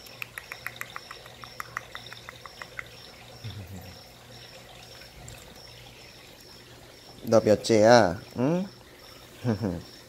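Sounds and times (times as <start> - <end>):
puppy claws clicking on concrete: 0.0 - 3.0
crickets chirping: 0.0 - 10.0.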